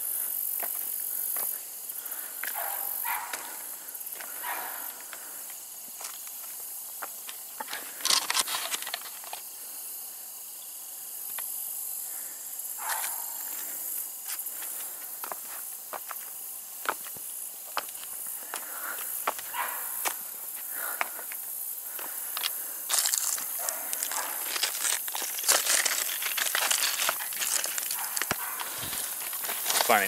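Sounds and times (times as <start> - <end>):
steady high hiss: 0.0 - 30.0
footsteps on timber and gravel: 0.6 - 1.6, 2.4 - 3.6, 4.2 - 9.4, 14.2 - 30.0.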